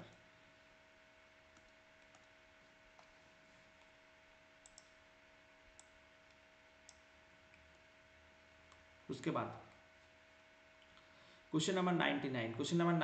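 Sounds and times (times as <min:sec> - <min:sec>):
soft clicks: 0:04.6 - 0:05.0, 0:05.8 - 0:07.8.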